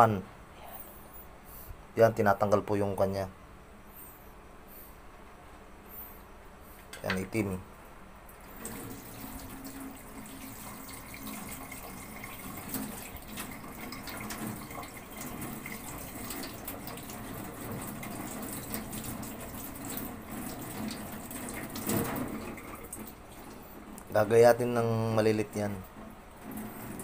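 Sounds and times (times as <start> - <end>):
tap running into metal sink: 8.6 - 23.2.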